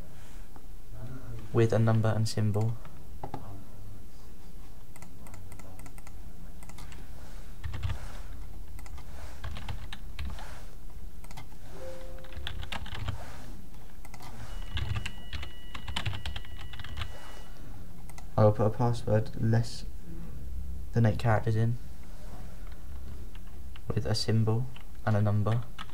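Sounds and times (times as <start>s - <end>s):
typing on computer keyboard: 7.6s - 8.0s, 8.7s - 10.4s, 11.2s - 11.6s, 12.2s - 13.2s, 14.1s - 17.2s, 24.7s - 25.9s.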